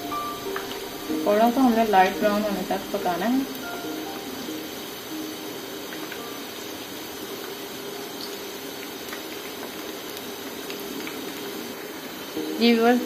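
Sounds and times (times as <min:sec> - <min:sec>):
fritters deep-frying in hot oil: 0:00.0 - 0:13.0
oil crackling: 0:00.0 - 0:13.0.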